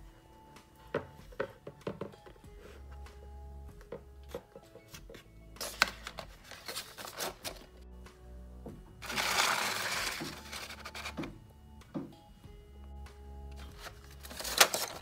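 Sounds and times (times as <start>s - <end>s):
soft background music: 0.0s - 15.0s
pencils clicking and tapping: 0.9s - 2.4s, 3.8s - 7.7s, 9.0s - 11.3s, 13.5s - 15.0s
rustling scrape: 9.0s - 11.2s.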